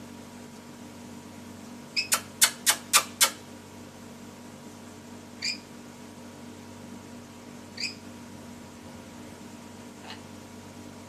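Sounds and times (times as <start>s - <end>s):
parrot short chirps: 2.0s - 3.4s, 5.4s - 5.6s, 7.8s - 8.0s
parrot harsh shrieks: 5.4s - 5.6s, 7.8s - 8.0s.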